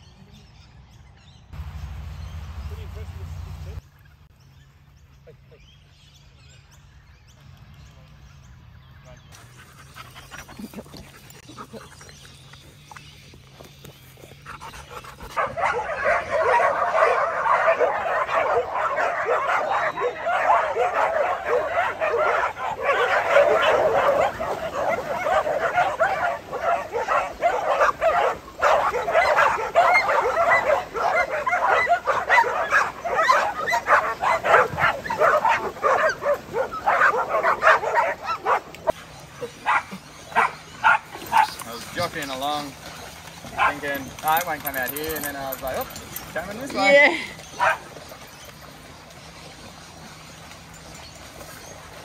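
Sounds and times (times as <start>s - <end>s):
pack of dogs barking: 14.4s - 48.9s.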